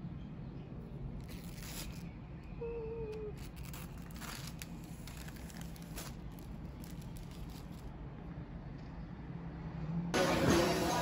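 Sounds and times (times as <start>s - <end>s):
paper sheet rustling and crinkling: 3.4s - 7.9s.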